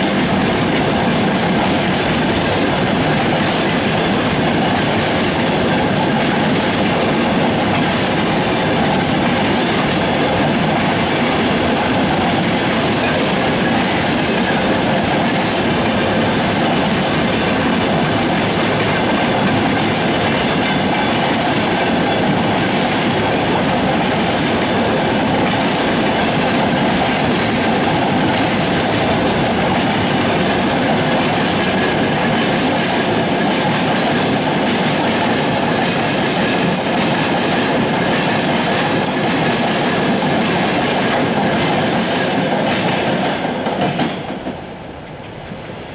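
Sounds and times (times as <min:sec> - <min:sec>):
freight train wheels rolling on rails: 0:00.0 - 0:45.9.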